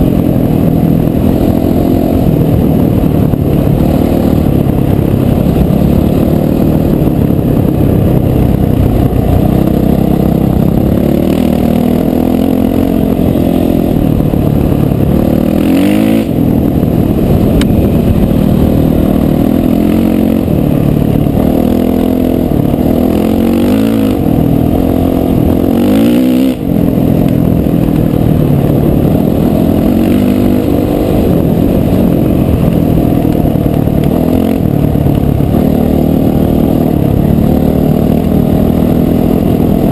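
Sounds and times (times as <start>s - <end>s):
dirt bike engine revving: 0.0s - 39.9s.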